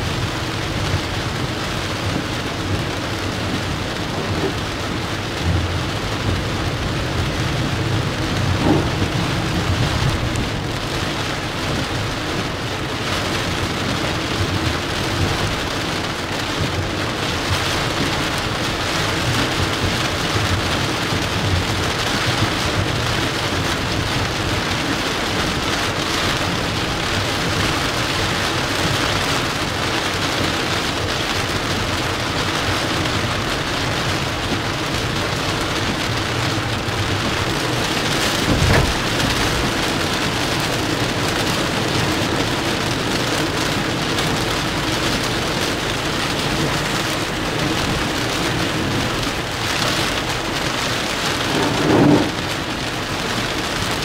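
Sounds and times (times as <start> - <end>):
heavy rain on car windshield: 0.0 - 54.0.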